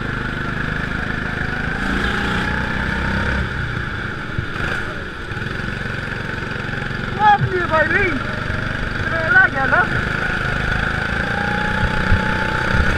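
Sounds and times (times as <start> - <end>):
go-kart engine under throttle: 0.0 - 12.9.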